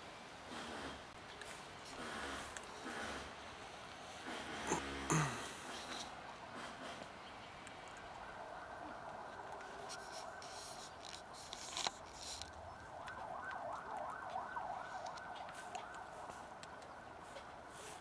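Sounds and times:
cats eating dry kibble: 0:00.6 - 0:04.6, 0:05.6 - 0:18.0
emergency vehicle siren: 0:08.0 - 0:17.7.

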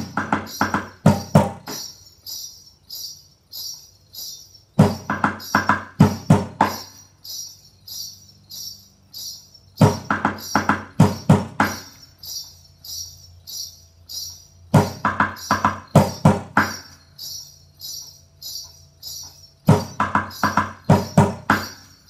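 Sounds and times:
stick drumming on plastic bucket: 0:00.0 - 0:01.9, 0:04.8 - 0:07.0, 0:09.8 - 0:12.0, 0:14.8 - 0:17.0, 0:19.7 - 0:21.8
jingling pulse: 0:00.0 - 0:22.0.

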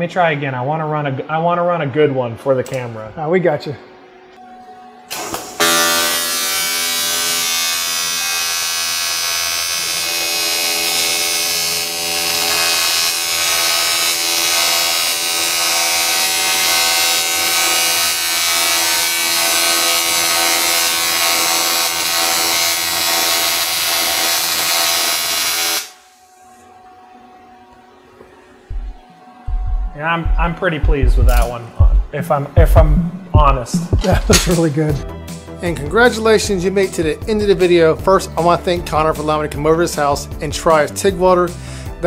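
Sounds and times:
welding arc buzzing and hissing: 0:05.1 - 0:26.4.

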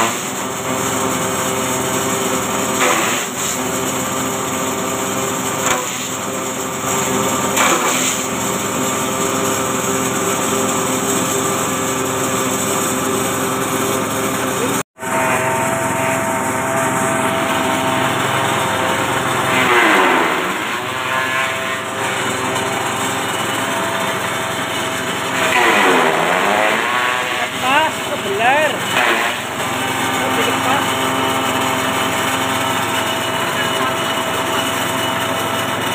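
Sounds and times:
forage chopper whining: 0:08.3 - 0:35.8.

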